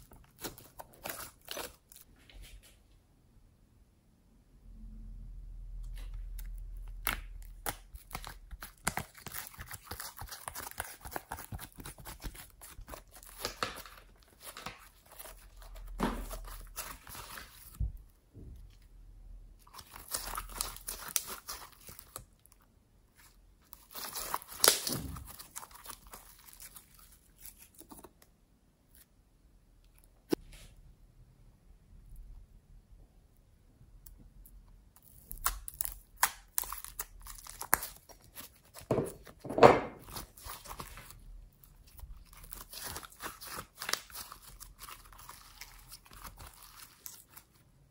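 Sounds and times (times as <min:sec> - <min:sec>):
slime squishing by hand: 0:05.9 - 0:28.3, 0:34.0 - 0:47.8.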